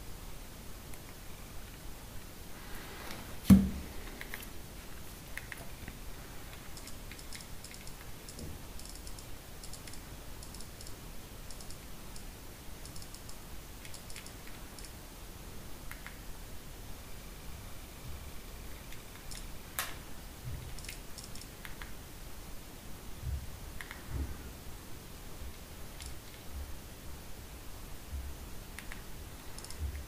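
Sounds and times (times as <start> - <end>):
sharp knock: 3.5 - 3.8.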